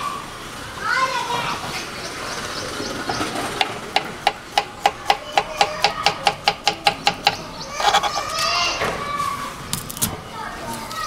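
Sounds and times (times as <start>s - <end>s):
knife tapping on cutting board: 3.6s - 8.0s.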